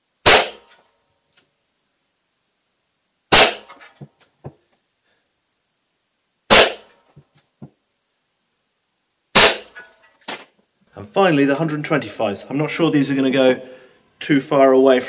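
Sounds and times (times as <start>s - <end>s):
gunshots with echo: 0.2s - 0.7s, 3.3s - 3.7s, 6.5s - 6.9s, 9.4s - 9.7s.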